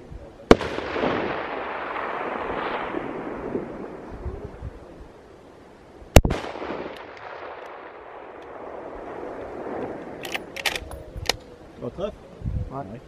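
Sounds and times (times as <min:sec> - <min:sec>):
rifle shot with echo: 0:00.5 - 0:04.5, 0:06.1 - 0:11.4.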